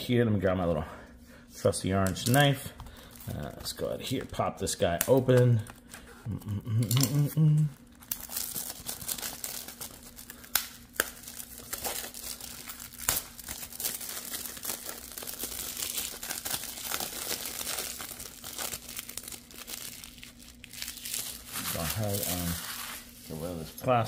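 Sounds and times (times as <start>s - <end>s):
plastic wrap crinkling and tearing: 6.8s - 24.0s.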